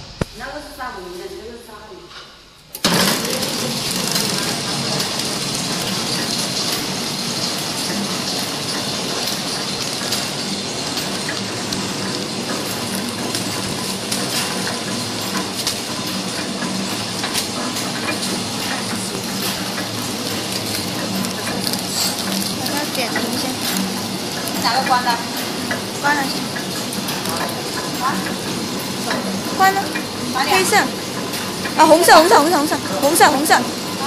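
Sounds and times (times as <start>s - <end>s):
wrapping machine hissing: 2.6s - 34.0s.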